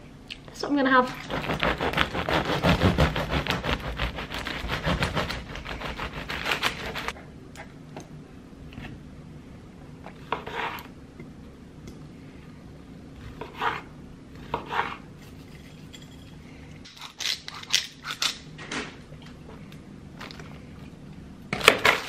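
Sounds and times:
knife sawing through crusty bread: 1.2s - 7.1s.

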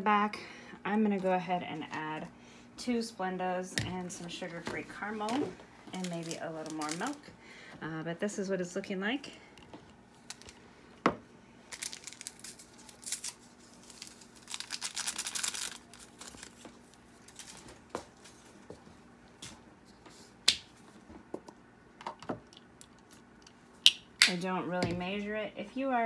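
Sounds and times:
paper packet tearing and rustling: 6.0s - 7.2s, 11.7s - 17.7s.

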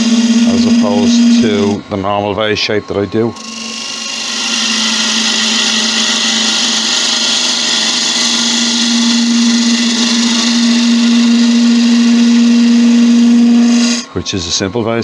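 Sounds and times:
turning tool cutting wood: 0.0s - 14.2s
wood lathe humming: 0.0s - 15.0s.

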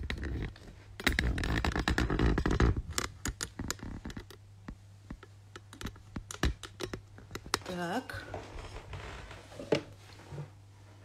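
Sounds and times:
clicks and taps: 0.0s - 7.8s.

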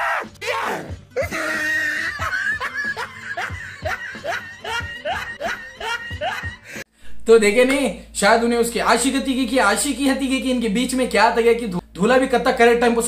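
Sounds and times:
person laughing: 1.1s - 6.8s.

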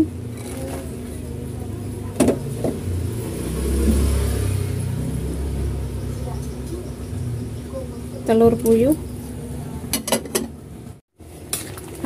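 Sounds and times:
vehicle engine passing by: 1.2s - 9.9s.

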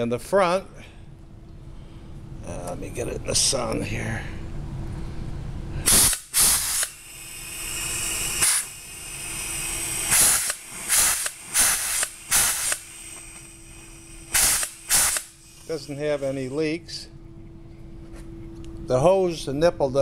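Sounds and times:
rivet gun air hisses: 5.8s - 16.7s.

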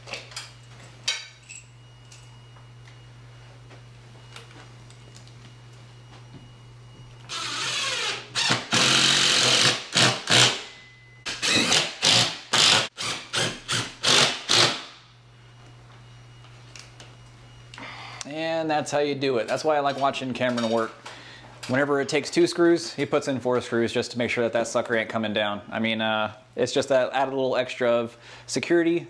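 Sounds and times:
cordless drill driving screws: 7.3s - 10.6s, 11.3s - 14.8s.

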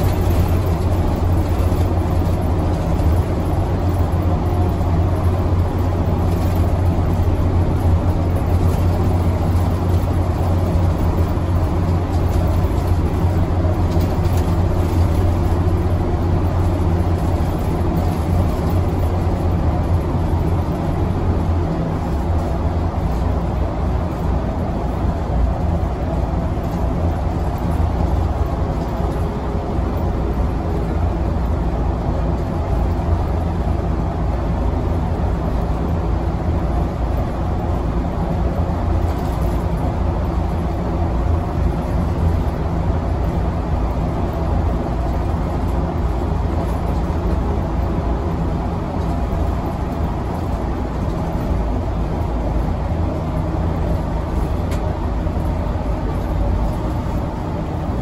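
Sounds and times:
bus engine and road noise: 0.0s - 58.0s.

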